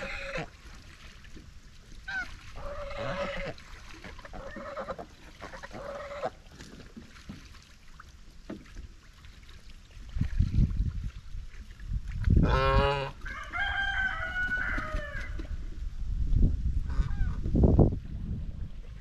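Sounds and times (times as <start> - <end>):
geese honking: 2.1 - 3.6.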